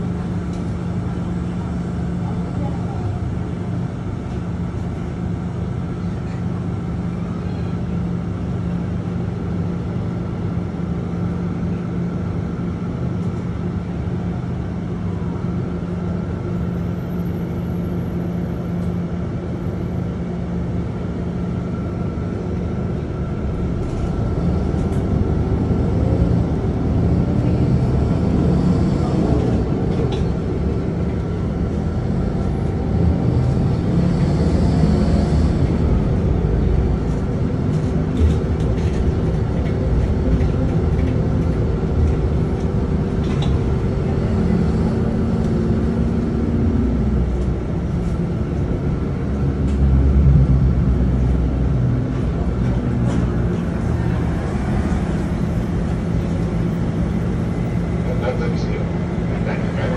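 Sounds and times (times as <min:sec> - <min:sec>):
engine drone: 0:00.0 - 0:59.9
traffic hum: 0:15.6 - 0:59.9.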